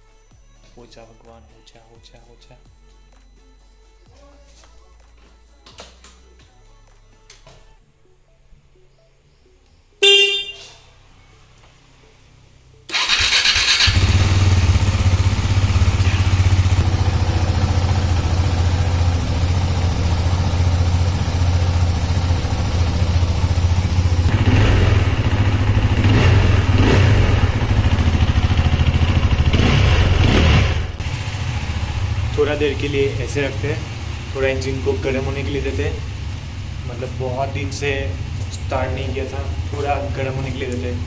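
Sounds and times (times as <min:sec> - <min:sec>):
short horn beep: 0:10.0 - 0:11.0
motorcycle engine idling: 0:12.9 - 0:41.0.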